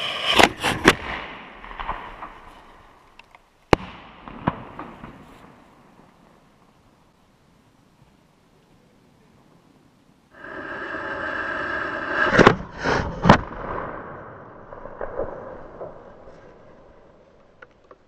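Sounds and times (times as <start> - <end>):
mortar firing bang: 3.7 - 5.3
firework fuse hissing: 10.4 - 12.4
firework reports: 10.4 - 17.0.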